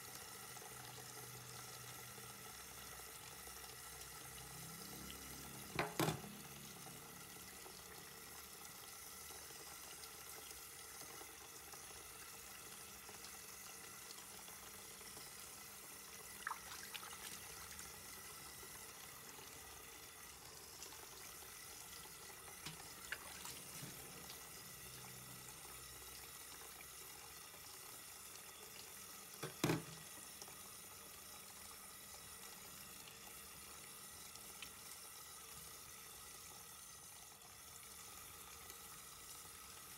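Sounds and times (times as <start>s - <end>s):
tap water into metal bowl: 5.7s - 6.4s, 29.4s - 30.1s.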